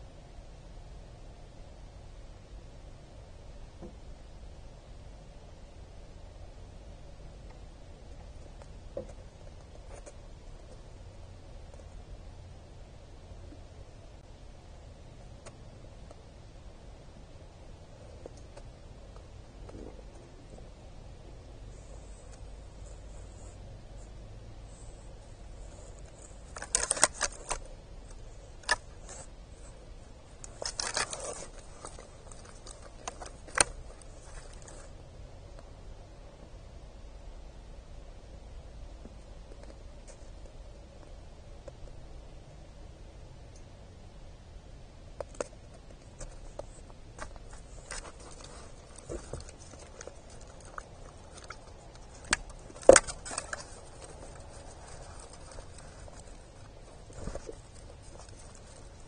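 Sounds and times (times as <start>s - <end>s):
deer crunching seed: 24.7s - 34.9s, 46.1s - 59.0s.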